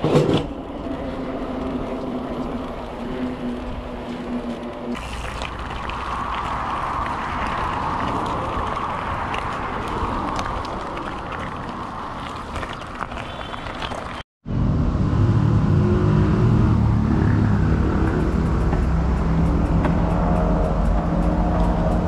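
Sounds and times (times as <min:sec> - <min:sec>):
bike tyres rolling on gravel: 0:00.6 - 0:14.2
low rumble: 0:14.4 - 0:22.0.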